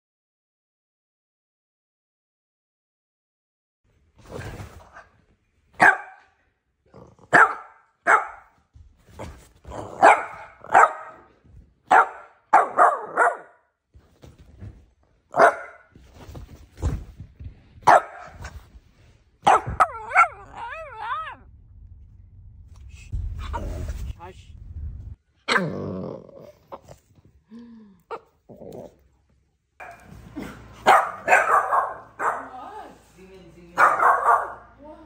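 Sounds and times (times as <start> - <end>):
puppy barking: 5.8 - 6.4, 7.3 - 8.6, 10.0 - 11.3, 11.9 - 13.6, 15.3 - 15.9, 17.8 - 18.4, 19.4 - 21.4, 29.8 - 30.2, 30.8 - 32.6, 33.8 - 34.8.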